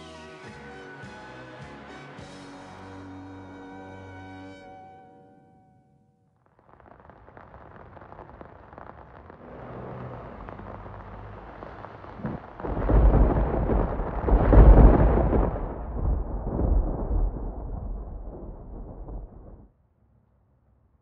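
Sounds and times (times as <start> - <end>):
rain hiss: 6.7 - 15.7
low rumble of thunder: 6.9 - 19.7.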